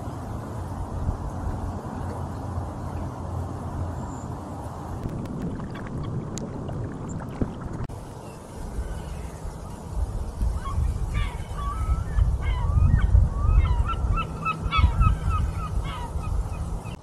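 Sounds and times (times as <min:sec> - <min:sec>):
low wind rumble: 0:00.0 - 0:17.0
geese honking: 0:13.6 - 0:16.6.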